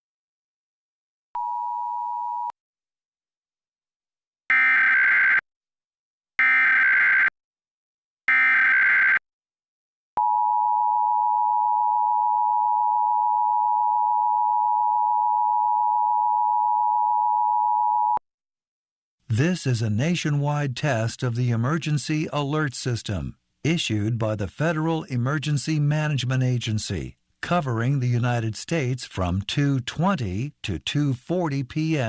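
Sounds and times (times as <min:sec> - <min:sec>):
long steady attention tone: 0:10.2 - 0:18.2.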